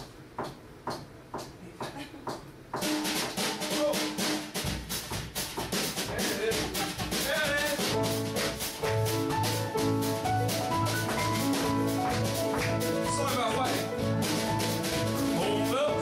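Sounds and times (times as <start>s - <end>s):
drums with busy cymbal beat: 0.0s - 16.0s
piano chords: 7.7s - 16.0s.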